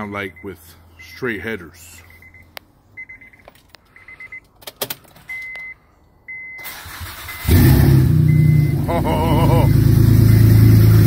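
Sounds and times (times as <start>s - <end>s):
keys and controls clicking: 2.2s - 5.8s
engine starting: 6.6s - 8.4s
electronic warning chime beeping: 8.3s - 10.5s.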